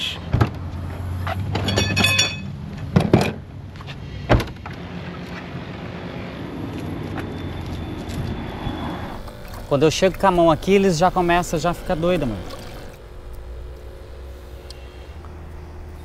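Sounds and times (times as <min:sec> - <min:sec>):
low background hum: 0:00.0 - 0:16.0
liftgate motor running: 0:05.8 - 0:16.0.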